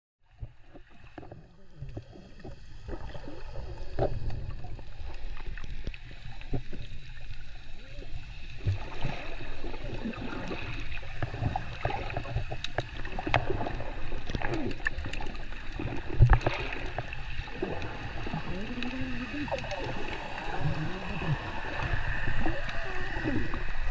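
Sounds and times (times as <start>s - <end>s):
underwater rumbling with bubbling: 0.2s - 23.9s.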